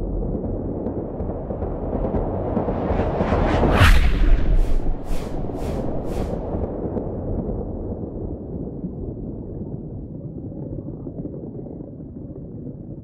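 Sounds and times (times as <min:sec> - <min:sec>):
low underwater rumble: 0:02.7 - 0:06.7.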